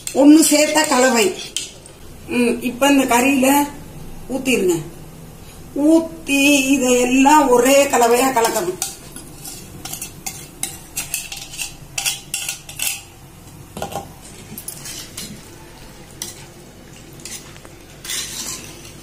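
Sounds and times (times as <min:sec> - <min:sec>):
metal utensil scraping clay pot: 0:00.0 - 0:01.8, 0:08.2 - 0:13.1, 0:14.6 - 0:15.4, 0:17.2 - 0:19.0.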